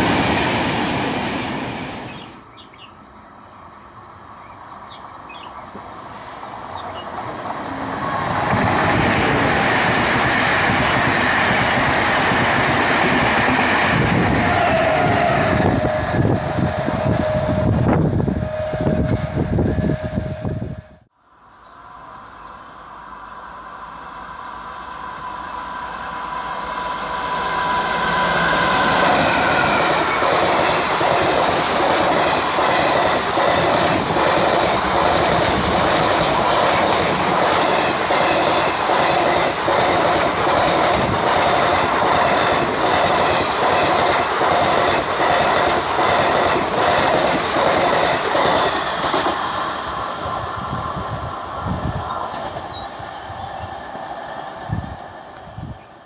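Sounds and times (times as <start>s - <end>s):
train passing at speed: 0.0s - 56.0s
steady high tone: 14.0s - 38.7s
train wheels clattering over rail joints: 28.9s - 49.6s.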